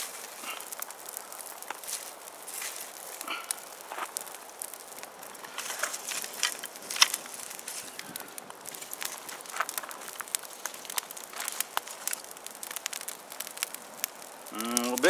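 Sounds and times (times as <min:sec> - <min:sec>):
campfire crackling and popping: 0:00.0 - 0:15.0.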